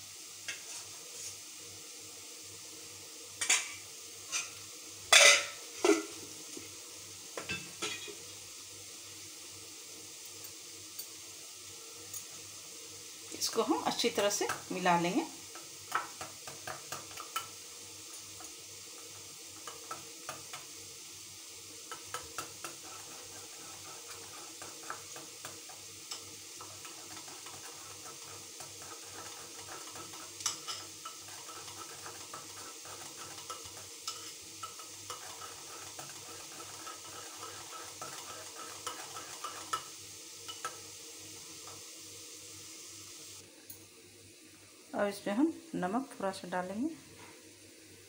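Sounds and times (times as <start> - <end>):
whisk beating in glass bowl: 21.9 - 25.6, 26.6 - 39.9
whisk tapping glass bowl: 24.1 - 39.9.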